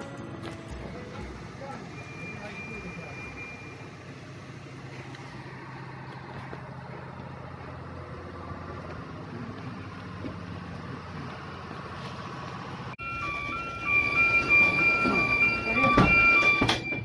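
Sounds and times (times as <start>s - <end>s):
alternating high tones: 1.0s - 4.8s, 13.0s - 17.0s.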